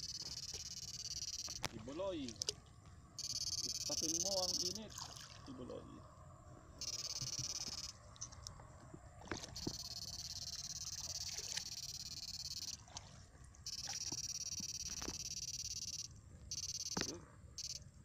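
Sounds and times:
high-pitched electronic whine: 0.0 - 1.7, 3.2 - 4.8, 6.8 - 8.0, 9.6 - 12.8, 13.7 - 17.8
splashes of wading in water: 4.8 - 5.7, 9.0 - 9.8, 10.9 - 12.0, 12.7 - 14.3.

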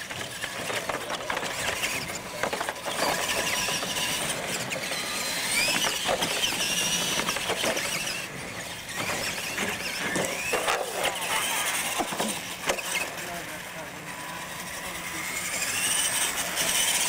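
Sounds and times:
electric motors whining: 0.0 - 17.0
toy trucks knocking on ramps: 5.4 - 8.2.

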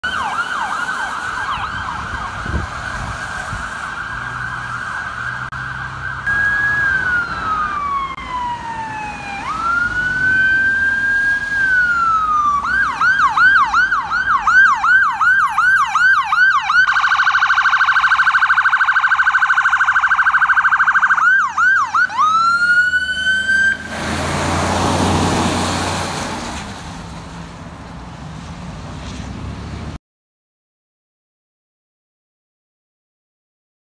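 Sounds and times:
ambulance siren: 0.0 - 26.4
rushing road noise: 0.0 - 30.0.

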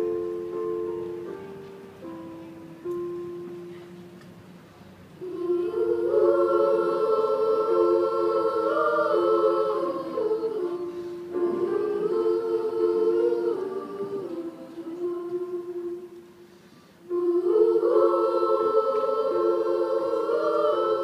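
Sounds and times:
girls' choir singing: 5.2 - 21.0.

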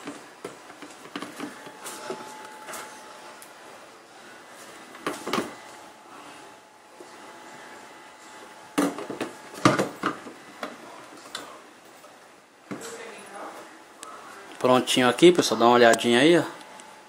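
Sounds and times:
plastic parts knocking and clicking: 0.0 - 1.7.

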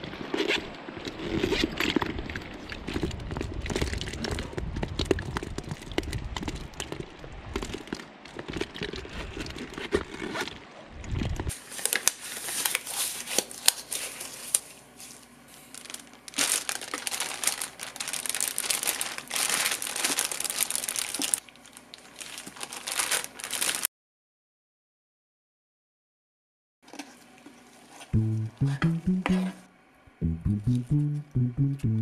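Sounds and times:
bag handling noise: 11.5 - 21.4, 22.2 - 23.9
plastic bag crinkling: 11.5 - 23.9.

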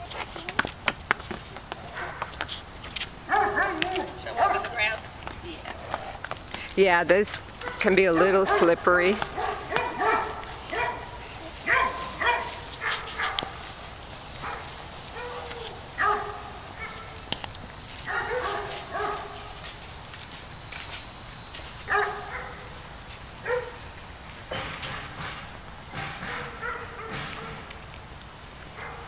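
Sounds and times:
animal barks and yelps: 3.3 - 4.8, 7.6 - 13.6, 14.4 - 17.2, 18.0 - 19.4, 21.9 - 22.7, 23.4 - 23.8, 26.2 - 27.6.

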